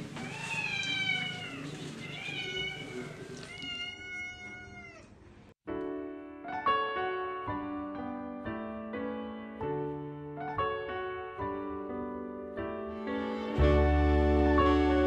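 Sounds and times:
cat meowing: 0.2 - 5.2
gentle piano music: 5.6 - 15.0.

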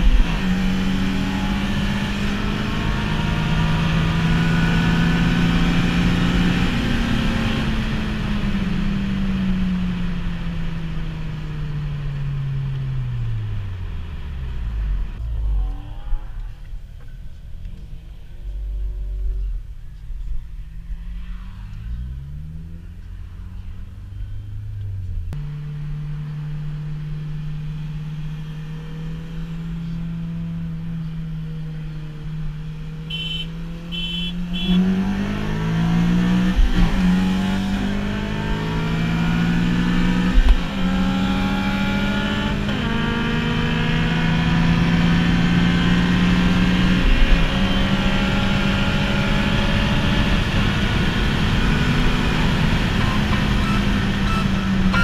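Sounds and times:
car engine revving: 0.0 - 55.0
short high beeps: 53.0 - 55.0.

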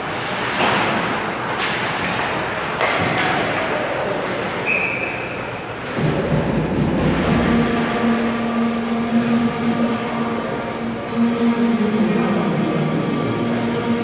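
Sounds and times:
arena crowd din: 0.0 - 14.0
hockey stick hitting puck: 0.4 - 3.7.

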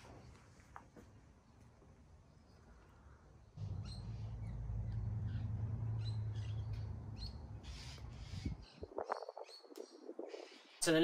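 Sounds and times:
small birds chirping: 1.4 - 11.0
steady low rumble: 3.6 - 9.2.

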